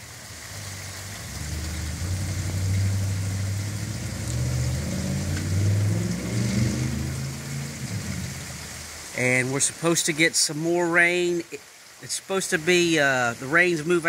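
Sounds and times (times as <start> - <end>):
rain falling: 0.0 - 14.0
vehicle engine accelerating: 0.4 - 9.1.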